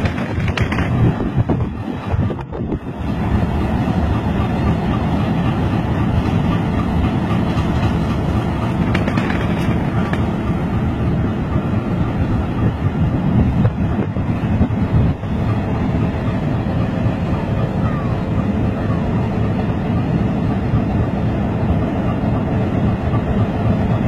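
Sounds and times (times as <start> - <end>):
wind on microphone: 0.0 - 3.9, 7.6 - 17.8
diesel locomotive idling: 0.0 - 24.0.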